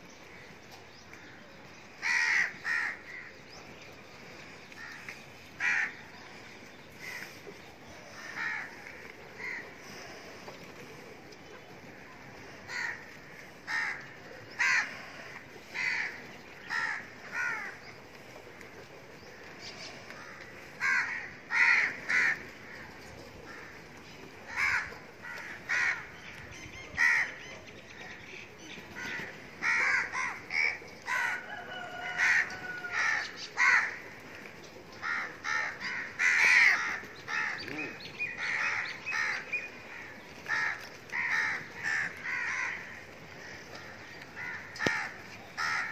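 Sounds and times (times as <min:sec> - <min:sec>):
crows cawing: 0:02.0 - 0:03.4, 0:04.2 - 0:06.1, 0:07.0 - 0:07.4, 0:08.0 - 0:10.6, 0:11.8 - 0:27.4, 0:29.0 - 0:45.9.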